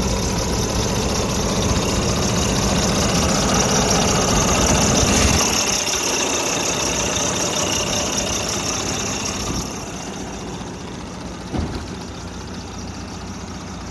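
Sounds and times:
diesel engine idling: 0.0 - 13.9
low thump: 11.4 - 12.2.

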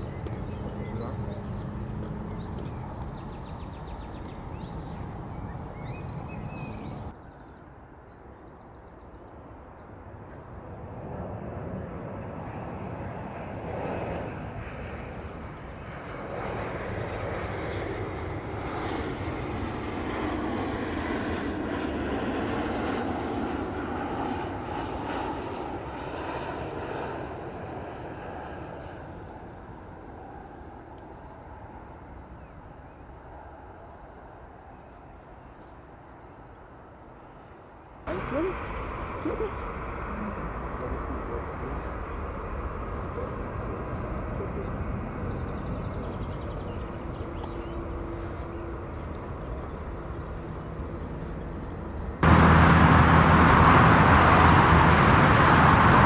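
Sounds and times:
distant jet airliner rumble: 0.0 - 7.2, 9.5 - 36.3, 38.1 - 56.0.

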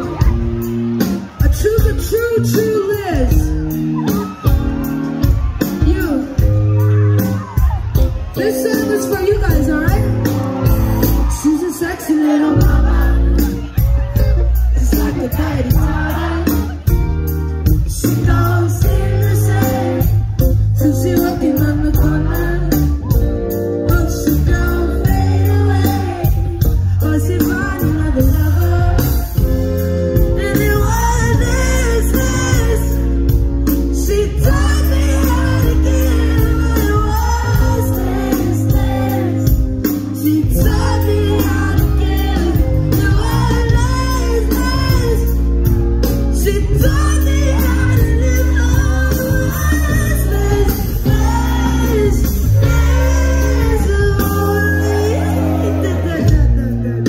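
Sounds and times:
live band music: 0.0 - 57.0
woman singing: 11.4 - 13.7, 17.9 - 57.0
heavy bass line: 24.1 - 57.0.

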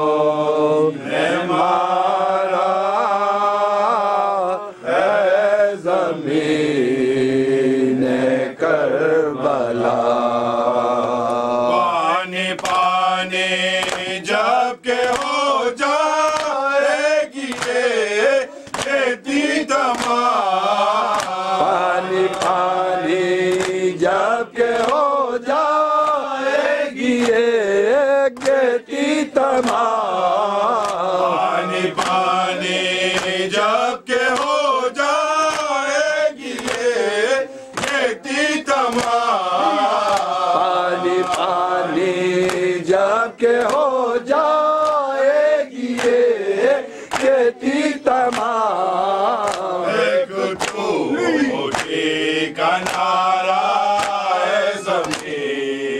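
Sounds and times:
group of men singing: 0.0 - 55.9
man chanting a lament: 0.0 - 55.9
chest-beating slaps: 12.5 - 12.9, 13.7 - 14.2, 14.9 - 15.5, 16.2 - 16.6, 17.4 - 17.9, 18.5 - 19.0, 19.8 - 20.3, 21.0 - 22.7, 23.4 - 23.9, 24.6 - 25.1, 27.1 - 27.5, 28.3 - 28.7, 29.4 - 30.0, 30.7 - 31.2, 31.9 - 32.3, 33.1 - 33.4, 34.3 - 34.6, 35.4 - 35.8, 36.4 - 37.0, 37.6 - 41.7, 42.4 - 42.8, 43.4 - 43.9, 45.8 - 46.3, 47.0 - 47.4, 48.2 - 48.6, 49.4 - 49.8, 50.6 - 52.1, 52.8 - 53.3, 53.9 - 55.5.

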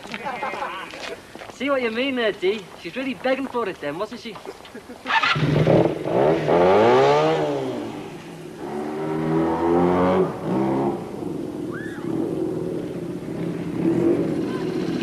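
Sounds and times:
motorcycle engine revving: 5.1 - 15.0.

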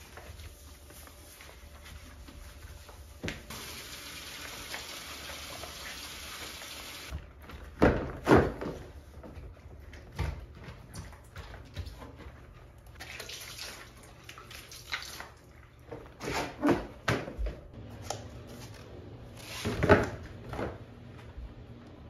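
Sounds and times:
faucet running: 3.5 - 7.1.

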